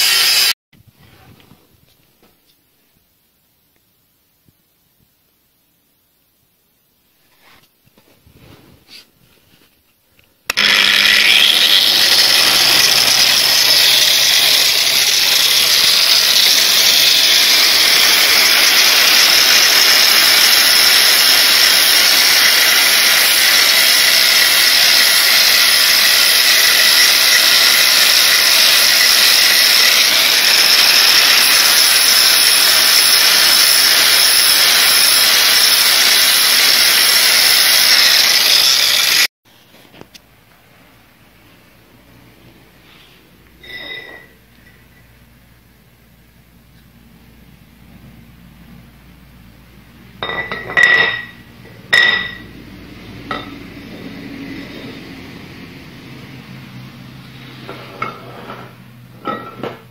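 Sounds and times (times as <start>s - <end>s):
angle grinder grinding metal: 0.0s - 0.6s, 10.5s - 39.3s, 43.6s - 44.8s, 50.2s - 56.2s.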